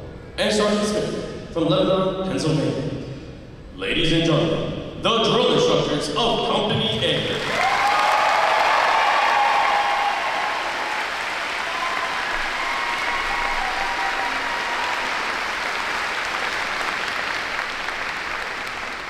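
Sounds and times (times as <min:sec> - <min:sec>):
audience applauding: 0:07.2 - 0:19.0.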